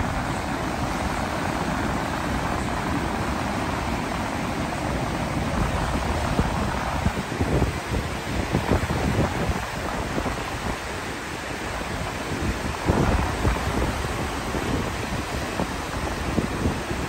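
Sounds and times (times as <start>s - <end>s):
waves breaking on a beach: 0.0s - 17.0s
wind buffeting the microphone: 0.0s - 17.0s.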